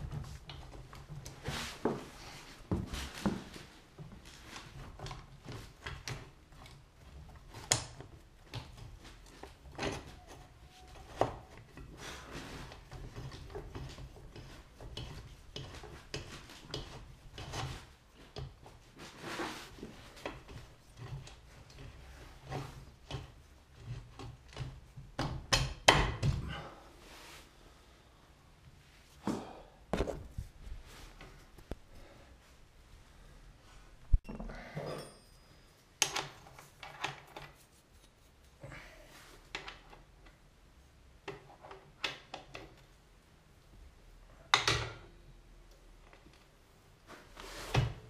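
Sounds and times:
clicks and knocks of metal parts: 0:36.0 - 0:38.6.

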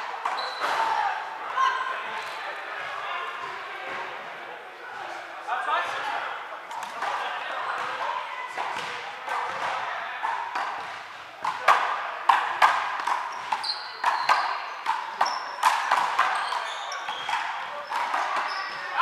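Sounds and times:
sneakers squeaking: 0:00.0 - 0:02.7, 0:06.7 - 0:19.0.

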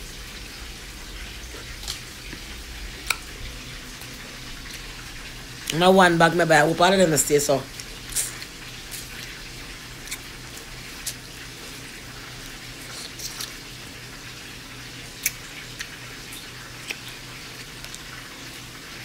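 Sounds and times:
person sucking and chewing: 0:01.3 - 0:03.4, 0:07.7 - 0:13.7, 0:15.1 - 0:18.7.

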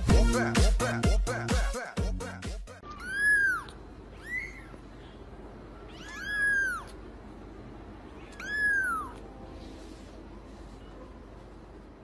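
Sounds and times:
kitten meowing: 0:02.8 - 0:04.8, 0:05.8 - 0:07.0, 0:08.2 - 0:09.3.

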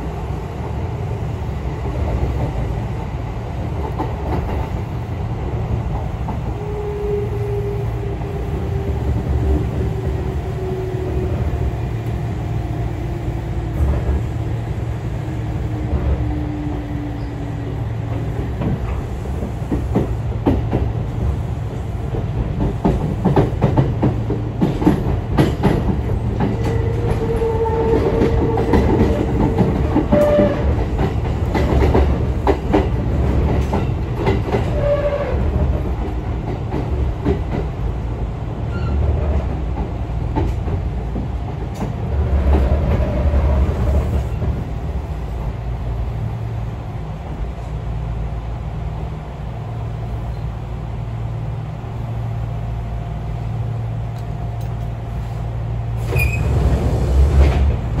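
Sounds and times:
wheel and track rumble: 0:00.0 - 0:58.0
clacking over rail joints: 0:22.1 - 0:37.7
wheel squeals: 0:56.1 - 0:56.6.

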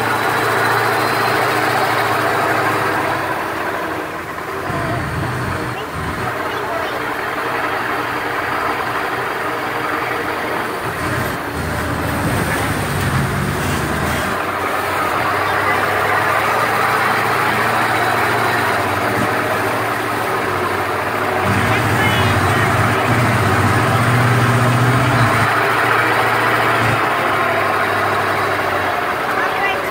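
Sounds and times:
broad rushing noise: 0:00.0 - 0:29.9
truck engine running: 0:00.0 - 0:29.9.

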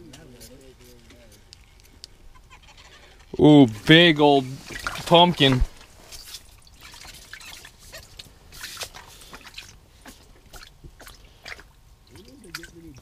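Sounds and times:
small taps and drips: 0:04.7 - 0:13.0.

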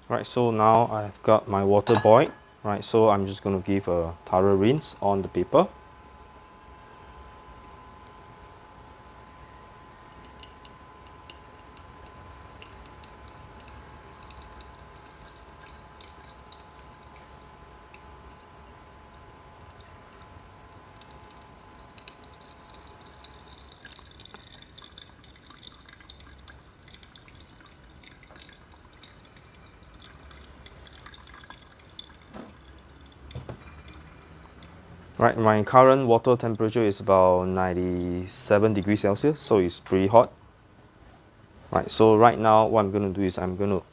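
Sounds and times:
water dripping into glass: 0:10.0 - 0:34.8
hot water pouring from kettle: 0:10.2 - 0:34.4.

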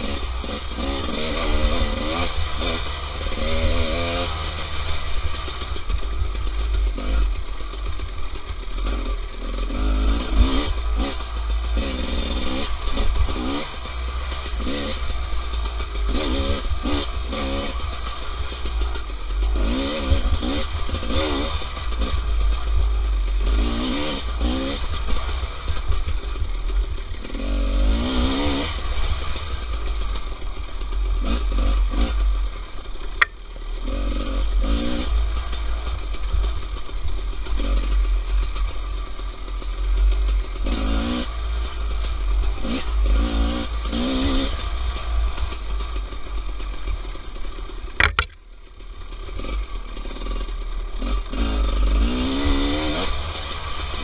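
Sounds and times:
motorcycle engine revving: 0:00.0 - 0:54.0
chassis rattle: 0:47.9 - 0:48.6
sharp click: 0:48.0 - 0:48.4.

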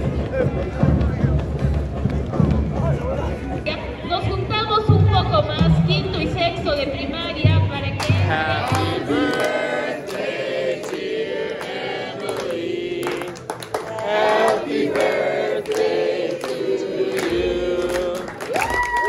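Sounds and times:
hand clapping: 0:08.0 - 0:19.0
group of people singing: 0:08.1 - 0:18.6.

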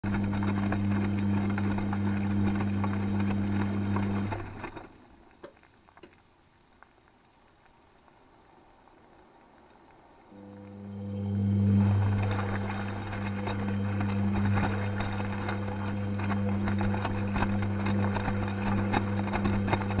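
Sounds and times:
washing machine motor humming: 0:00.0 - 0:05.0, 0:10.3 - 0:20.0
water and clothes sloshing: 0:00.0 - 0:05.2, 0:10.4 - 0:20.0
faint drips and ticks: 0:00.0 - 0:20.0.

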